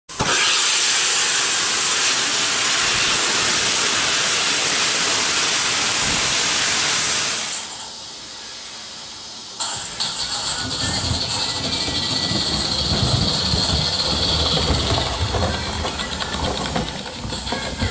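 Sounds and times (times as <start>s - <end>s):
steam locomotive hissing steam: 0.1s - 17.9s
model train rattling on track: 9.3s - 17.9s.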